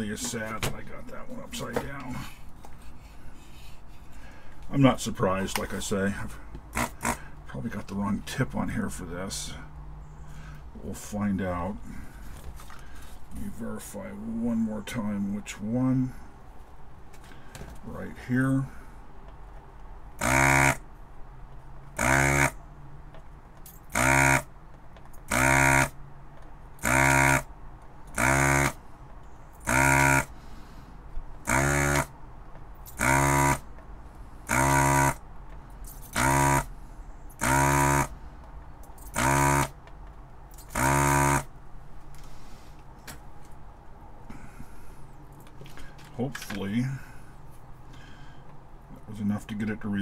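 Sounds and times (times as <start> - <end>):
desoldering pump buzzing: 6.7 - 7.3, 20.1 - 20.9, 21.9 - 22.6, 23.8 - 24.6, 25.2 - 26.0, 26.8 - 28.8, 29.6 - 30.5, 31.4 - 32.2, 32.8 - 33.7, 34.4 - 35.3, 36.1 - 36.7, 37.4 - 38.2, 39.1 - 39.9, 40.6 - 41.6.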